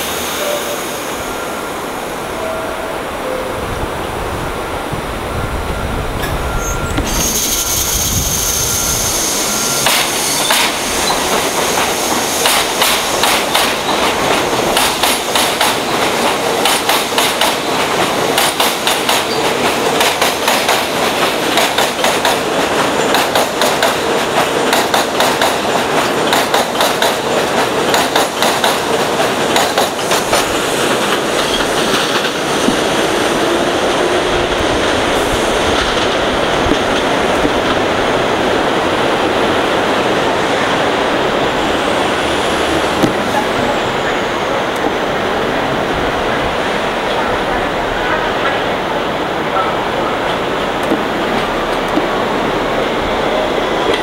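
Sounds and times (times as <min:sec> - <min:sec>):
train wheels clattering over joints: 0:09.8 - 0:33.0.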